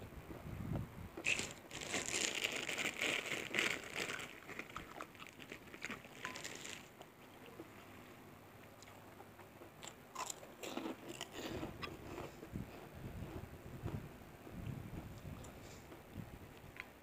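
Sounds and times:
plastic bag crinkling: 1.2s - 7.0s.

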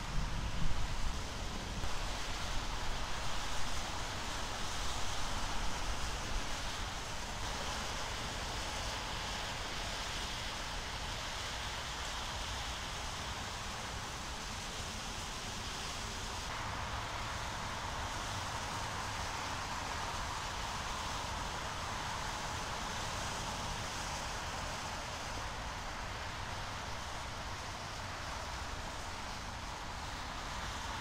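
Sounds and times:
wind noise on microphone: 0.0s - 11.3s.

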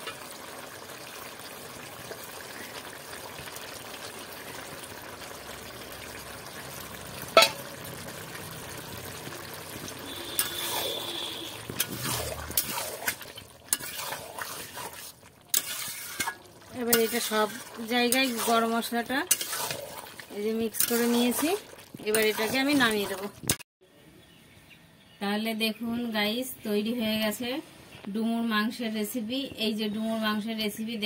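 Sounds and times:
curry bubbling and sizzling: 0.0s - 23.7s
spatula scraping metal pot: 10.1s - 23.6s.

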